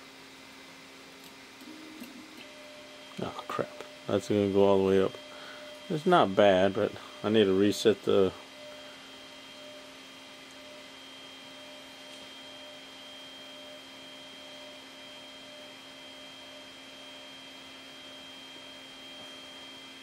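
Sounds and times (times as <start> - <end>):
faint electrical hum: 0.0 - 20.0
high-pitched whine: 1.6 - 9.9.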